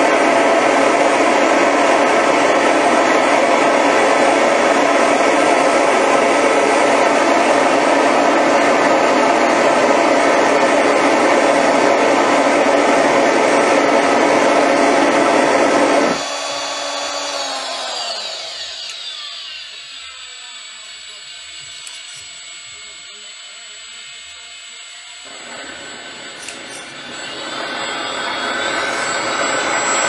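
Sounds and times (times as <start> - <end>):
jet engine roaring: 0.0 - 21.2, 25.2 - 30.0
rotor spinning down whine: 0.0 - 30.0.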